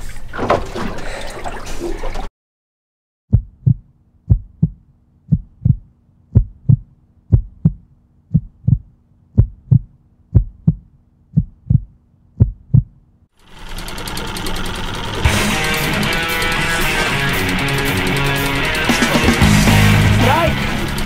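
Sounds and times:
heartbeat double thump: 3.3 - 13.0.

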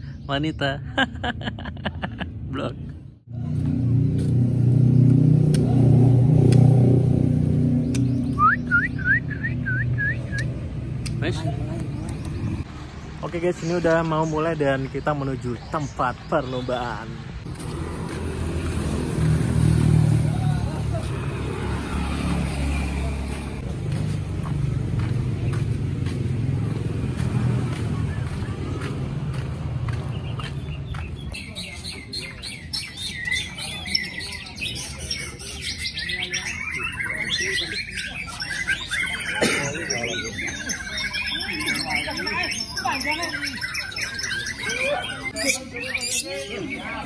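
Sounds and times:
vehicle engine rumbling: 0.9 - 31.4
bird whistling rising notes: 7.8 - 10.6
footsteps on dirt path: 23.2 - 32.0.

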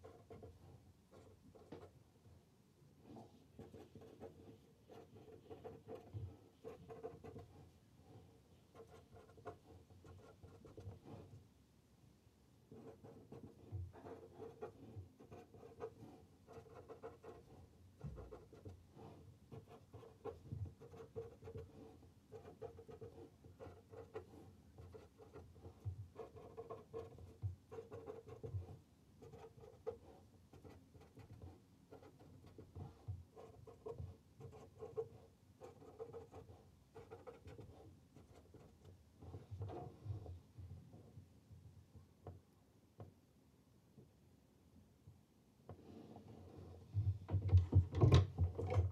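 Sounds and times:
pen writing on paper: 0.0 - 1.9, 3.0 - 11.3, 12.7 - 40.3.

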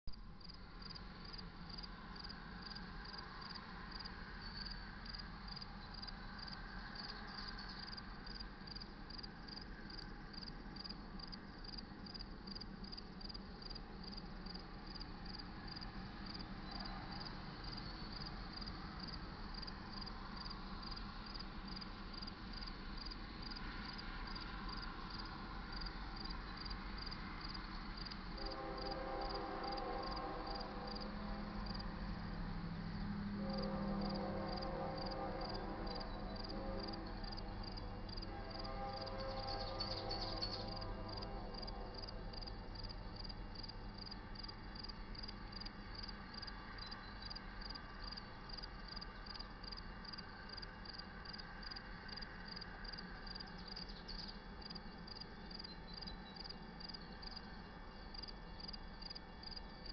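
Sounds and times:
crickets chirping: 0.1 - 59.9
low outdoor hum: 0.1 - 59.9
distant locomotive air horn: 28.2 - 46.8.

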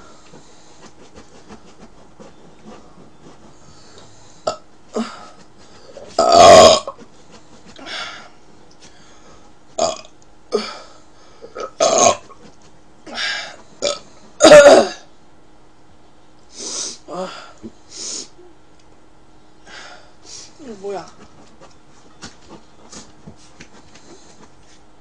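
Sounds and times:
woman burping loudly: 6.2 - 7.0, 9.8 - 10.7, 11.6 - 12.3, 13.8 - 15.1.

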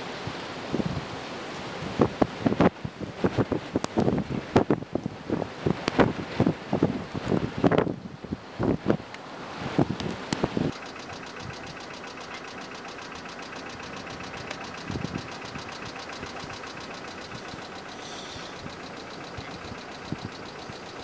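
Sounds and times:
wind buffeting microphone: 0.1 - 21.0
fast even ticking: 10.3 - 21.0
motor running: 10.3 - 21.0.

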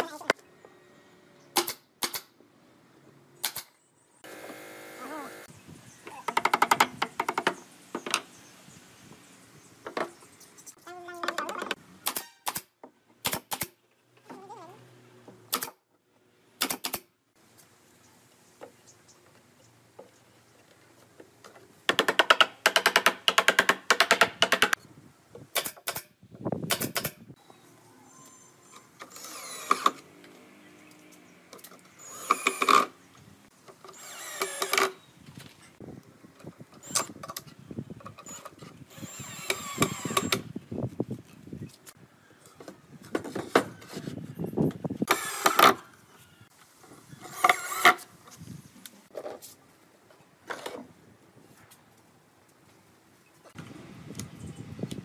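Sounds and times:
nail gun firing into wood: 1.6 - 2.3, 3.4 - 3.7, 12.0 - 13.8, 15.5 - 15.8, 16.6 - 17.1, 25.5 - 26.1, 26.7 - 27.2.

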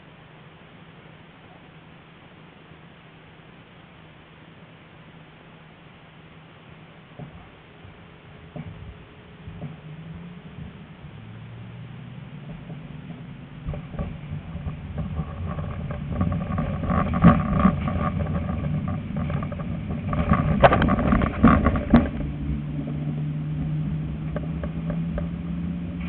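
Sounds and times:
steady low hum: 0.0 - 26.0
tram rolling on rails: 6.9 - 26.0
wheels clattering over rail joints: 7.1 - 26.0.

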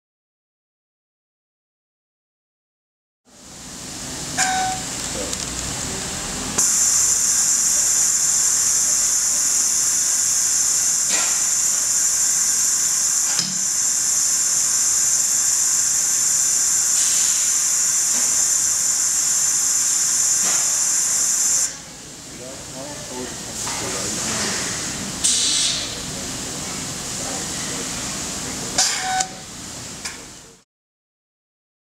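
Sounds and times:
vacuum sealer air hiss: 6.6 - 21.8, 24.0 - 26.0.

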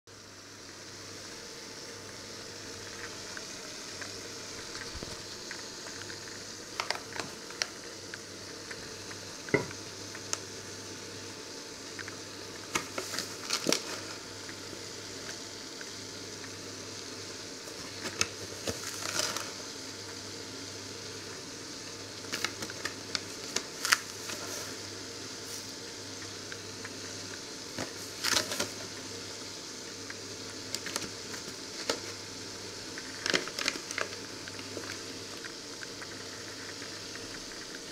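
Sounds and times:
steady hiss: 0.1 - 37.9
liquid bubbling in saucepan: 0.2 - 37.9
sugar poured from paper bag: 12.5 - 15.4, 17.6 - 19.8, 22.2 - 25.8, 26.8 - 29.0, 32.9 - 37.9.

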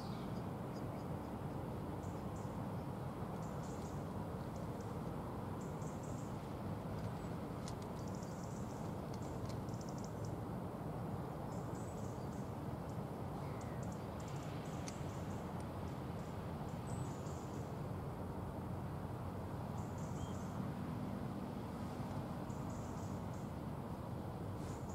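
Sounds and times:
small birds chirping: 5.6 - 10.4, 11.5 - 17.7.

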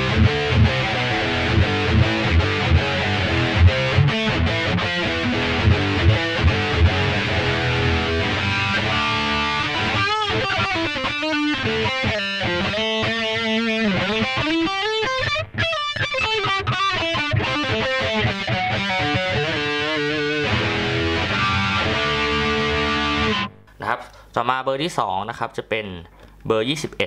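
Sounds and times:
distorted electric guitar: 0.0 - 24.2.

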